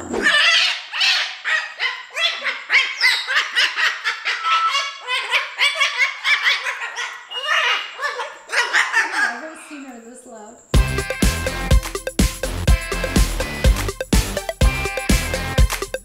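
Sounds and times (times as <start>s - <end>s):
cockatoo squawking: 0.0s - 9.7s, 14.4s - 15.9s.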